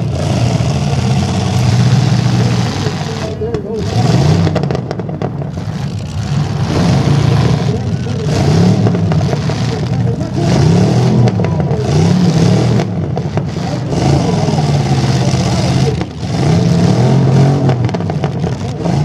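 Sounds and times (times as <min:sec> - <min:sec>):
truck engines revving hard: 0:00.0 - 0:19.0.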